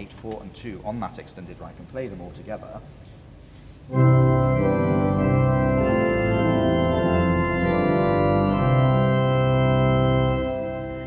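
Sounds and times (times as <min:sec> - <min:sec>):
pipe organ playing held chords: 0:03.9 - 0:11.0.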